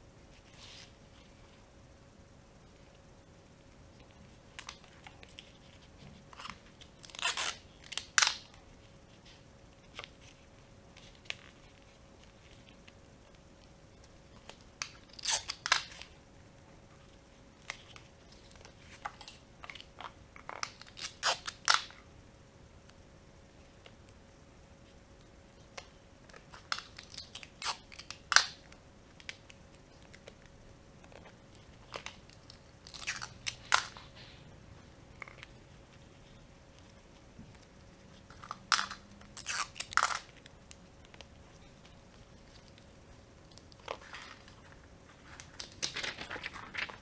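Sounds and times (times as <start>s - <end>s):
paper crinkling and rustling: 41.6s - 47.0s.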